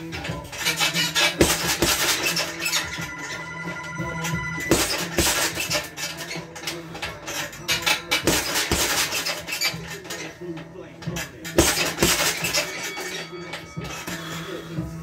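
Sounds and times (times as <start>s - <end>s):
gloves thudding on punching bag: 1.4s - 2.2s, 8.2s - 9.3s, 11.6s - 12.6s.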